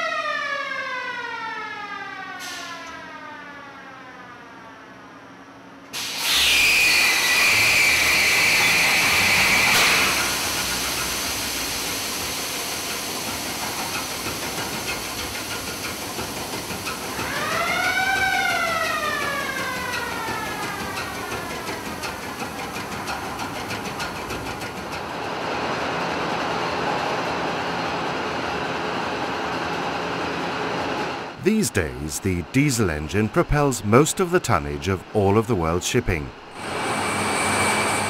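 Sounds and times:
siren-like wail: 0.0s - 5.2s, 6.6s - 10.0s, 17.2s - 21.7s
loud hissing rush with whine: 33.0s - 38.0s.

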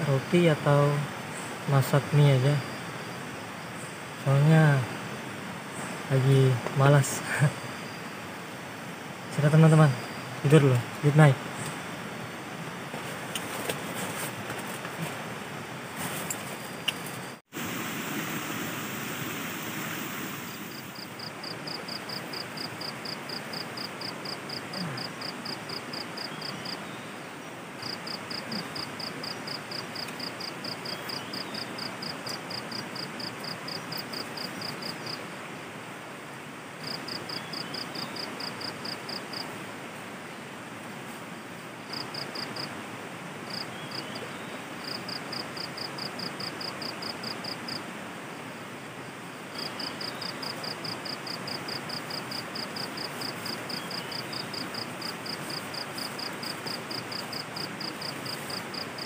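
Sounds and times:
insect calling in high pulses: 16.6s - 27.0s
river water rushing: 16.8s - 21.6s.

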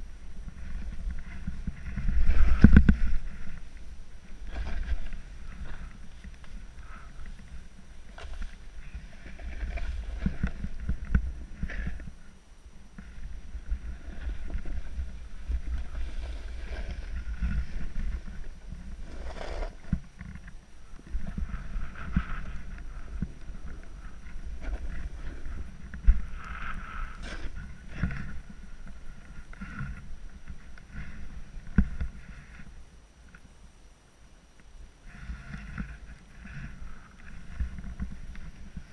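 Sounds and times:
snowboard rumbling over snow: 0.0s - 33.0s, 35.1s - 38.9s
board edge scraping snow: 0.4s - 12.1s, 13.0s - 32.8s.

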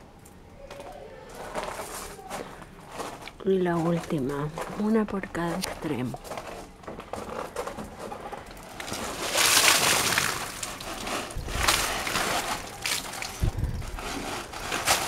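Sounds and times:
water pouring and splashing down: 6.9s - 15.0s.

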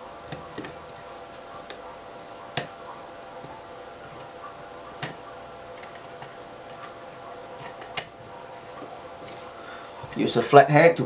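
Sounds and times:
faint steady hum: 0.0s - 11.0s
plastic parts clicking together: 0.3s - 2.7s, 5.0s - 7.0s, 7.6s - 8.9s.

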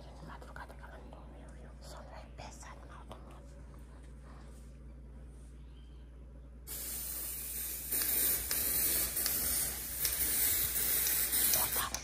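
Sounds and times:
aerosol spray can hissing: 6.7s - 12.0s.

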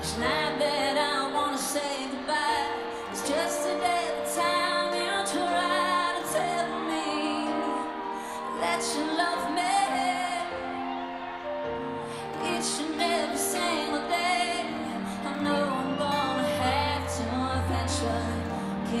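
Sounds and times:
woman singing pop song: 0.0s - 19.0s.

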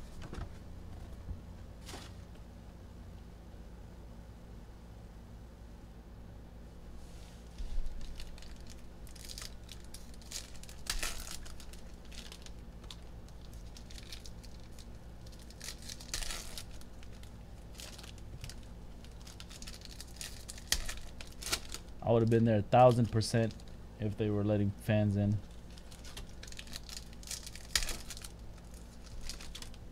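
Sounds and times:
foil wrappers crinkling and tearing: 7.6s - 23.8s, 25.4s - 29.9s.

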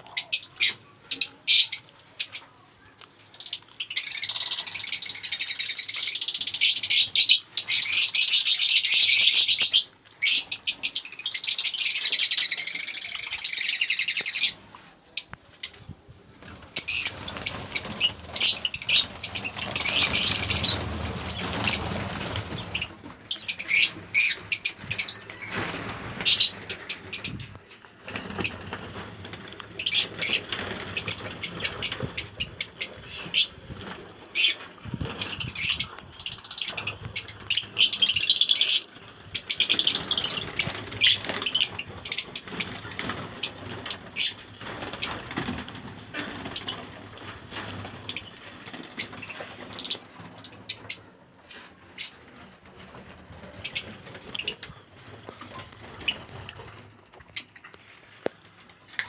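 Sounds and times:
lovebirds chattering: 0.0s - 2.6s, 16.7s - 27.6s, 29.8s - 45.4s.

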